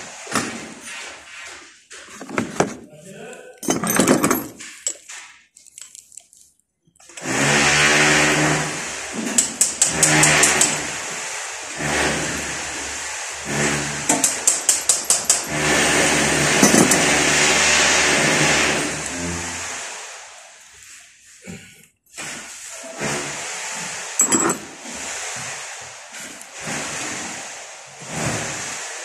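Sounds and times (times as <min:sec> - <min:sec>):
power tool motor humming: 0:07.2 - 0:19.7.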